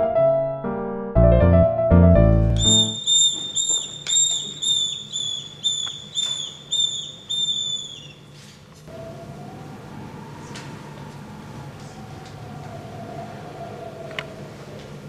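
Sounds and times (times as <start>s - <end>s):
piano tune: 0.0s - 4.6s
whistle short high notes: 2.5s - 8.1s.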